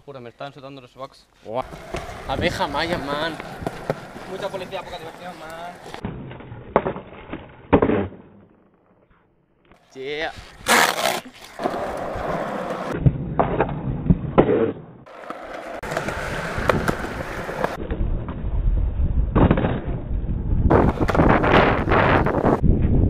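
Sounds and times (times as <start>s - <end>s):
skateboard wheels rolling on concrete: 1.4s - 8.0s, 9.7s - 23.0s
skateboard clacking on ground: 1.6s - 6.0s, 14.4s - 17.8s.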